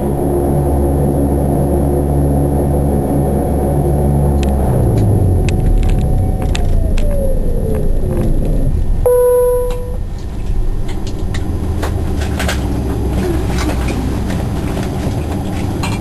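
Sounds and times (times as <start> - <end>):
airliner cabin rumble: 0.0 - 16.0
steady tone: 5.1 - 10.2.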